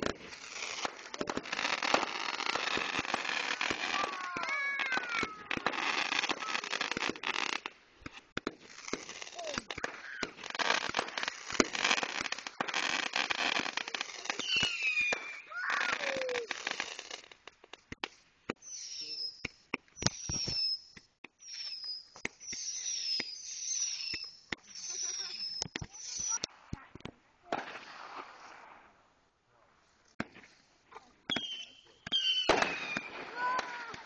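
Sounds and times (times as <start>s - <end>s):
fireworks crackling and popping: 0.0s - 34.0s
falling firework whistles: 8.7s - 17.2s, 18.5s - 26.5s, 31.3s - 34.0s.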